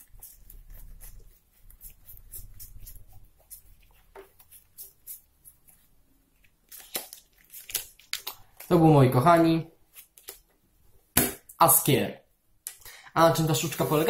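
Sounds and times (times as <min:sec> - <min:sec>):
playing cards clicking and flicking: 0:06.7 - 0:08.8.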